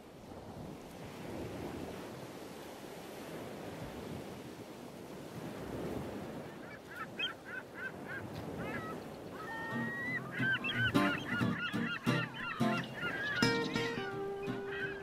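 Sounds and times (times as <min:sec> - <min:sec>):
bird calls: 0:06.6 - 0:15.0.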